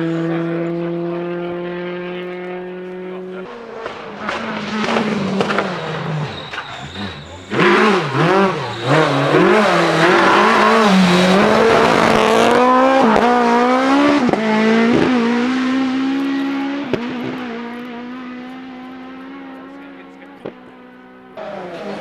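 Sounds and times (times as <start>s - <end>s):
rally car engine accelerating: 0.0s - 22.0s
gear change crack: 3.6s - 13.3s.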